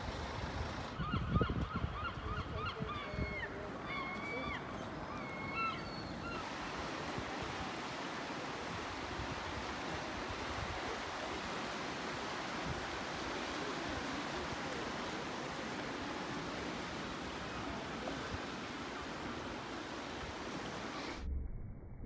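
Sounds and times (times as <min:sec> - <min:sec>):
river rushing through rapids: 0:06.2 - 0:21.2.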